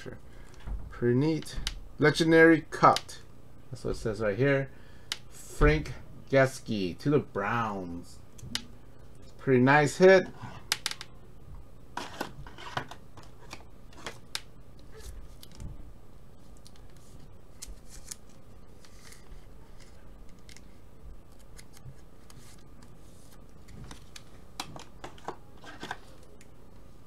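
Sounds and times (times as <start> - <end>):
trading cards clicking and rustling: 16.5 - 26.5.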